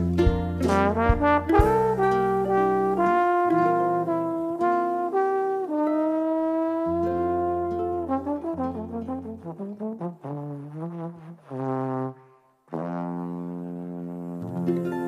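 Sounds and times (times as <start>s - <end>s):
cavaquinho: 0.0s - 4.7s
plucked acoustic guitar: 0.0s - 6.0s, 6.7s - 9.8s
trombone slow melody: 0.0s - 15.0s.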